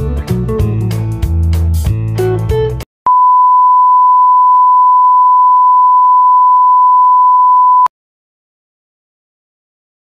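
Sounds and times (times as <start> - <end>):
steady electronic beep: 3.1 - 7.9.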